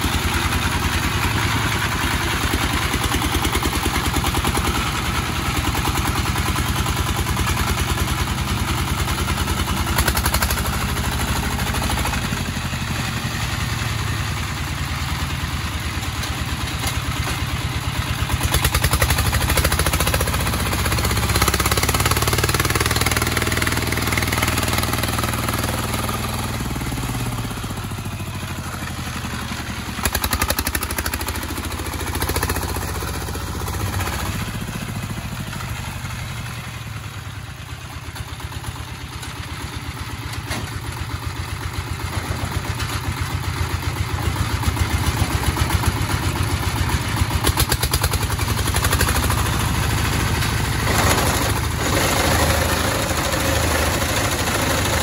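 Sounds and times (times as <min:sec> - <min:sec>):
clatter: 0:00.0 - 0:55.0
diesel engine chugging: 0:00.0 - 0:55.0.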